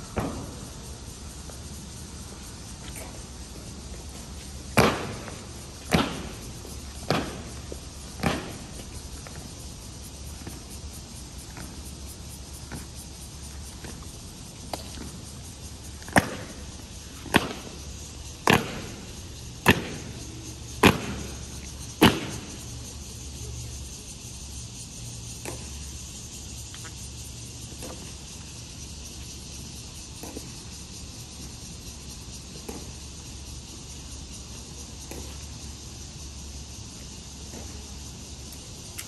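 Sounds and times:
boots striking stone in unison: 0:04.7 - 0:09.5, 0:18.4 - 0:22.6.

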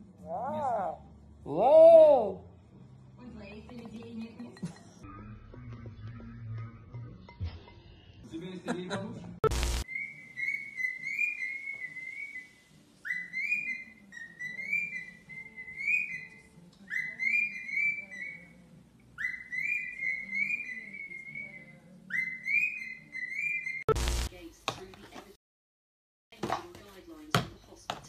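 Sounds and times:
parrot whistling: 0:09.9 - 0:16.4, 0:19.2 - 0:23.9.

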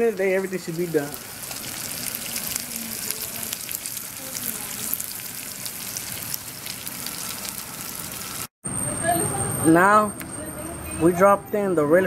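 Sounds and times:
meat sizzling in oil: 0:00.0 - 0:08.5
oil popping and crackling: 0:00.0 - 0:08.5.

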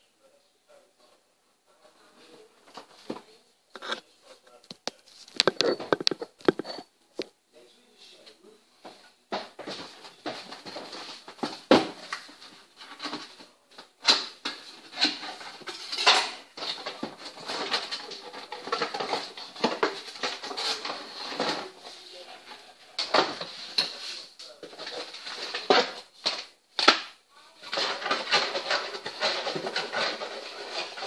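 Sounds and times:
packaging rustling and scraping: 0:02.7 - 0:04.1, 0:04.8 - 0:06.9, 0:09.4 - 0:26.6, 0:27.6 - 0:31.0.

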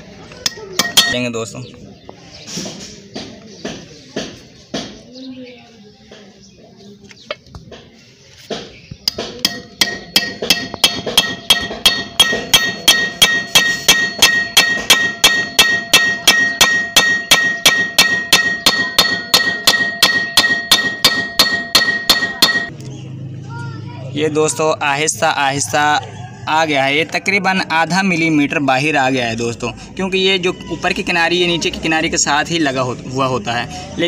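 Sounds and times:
hammer tapping on steel: 0:00.4 - 0:01.2, 0:09.0 - 0:22.7.

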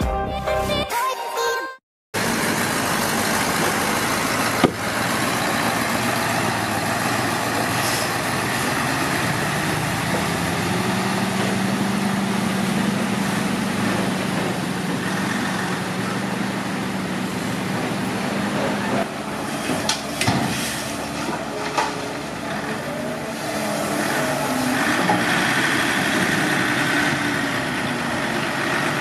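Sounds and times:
diesel truck engine running: 0:02.2 - 0:29.0
sharp knock: 0:04.6 - 0:04.8.

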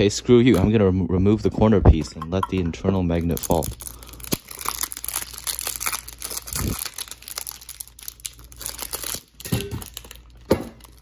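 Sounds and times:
plastic bag crinkling: 0:03.1 - 0:11.0.

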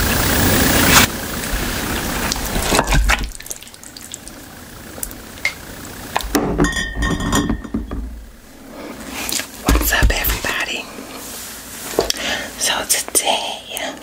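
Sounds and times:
ringing clink: 0:06.6 - 0:07.8.

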